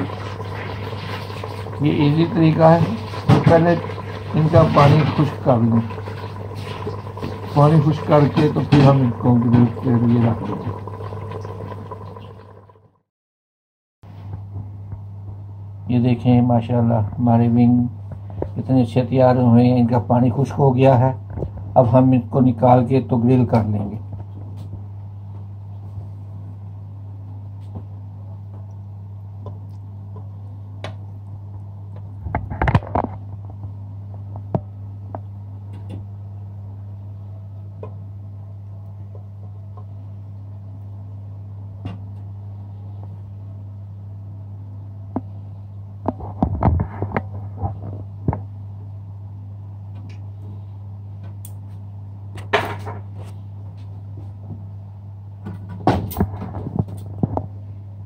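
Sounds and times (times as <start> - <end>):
steady low hum: 14.1 - 58.0.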